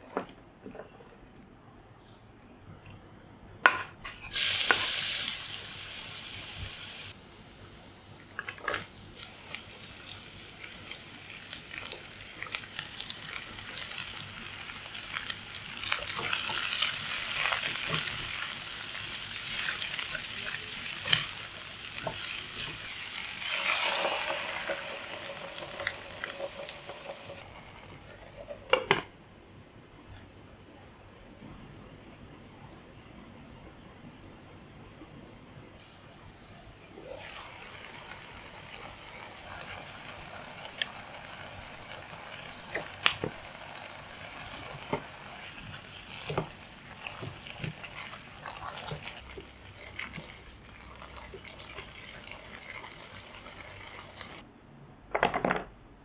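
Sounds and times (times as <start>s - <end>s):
vegetables sizzling in hot oil: 4.2s - 28.0s, 37.0s - 54.4s.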